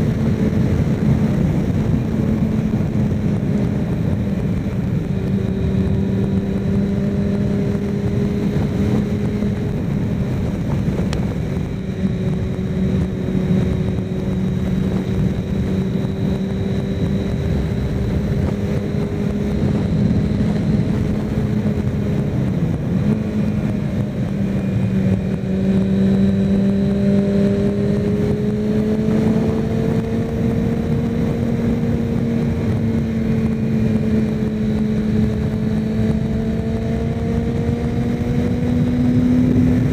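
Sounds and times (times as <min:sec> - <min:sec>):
motorcycle engine cruising: 0:00.0 - 0:39.9
wind noise on microphone: 0:00.0 - 0:39.9.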